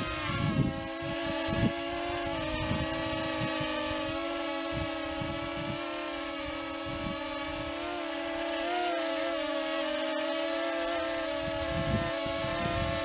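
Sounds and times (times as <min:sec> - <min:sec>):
wind buffeting microphone: 0:00.0 - 0:07.9, 0:11.0 - 0:13.0
quadcopter propeller whine: 0:00.0 - 0:13.0.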